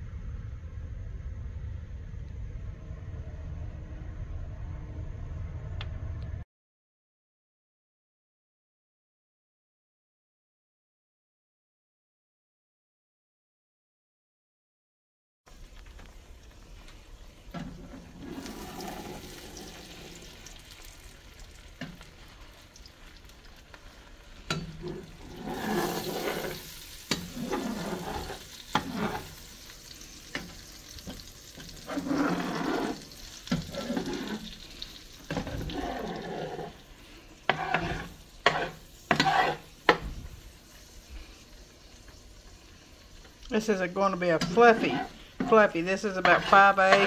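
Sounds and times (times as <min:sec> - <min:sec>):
eggs sizzling in butter: 0:15.5 - 0:47.0
metal spatula scraping pan: 0:17.5 - 0:21.0, 0:24.5 - 0:40.2, 0:43.6 - 0:47.0.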